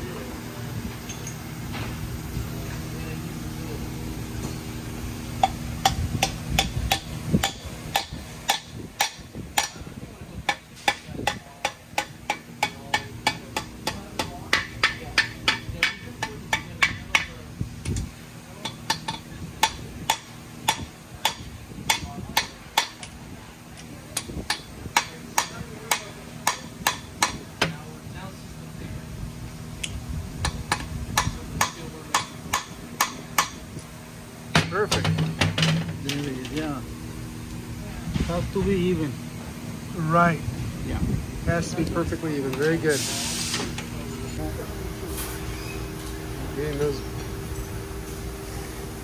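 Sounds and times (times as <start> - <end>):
hammer tapping on metal: 5.4 - 9.8, 10.5 - 17.4, 18.6 - 23.2, 24.1 - 27.8, 30.4 - 33.6.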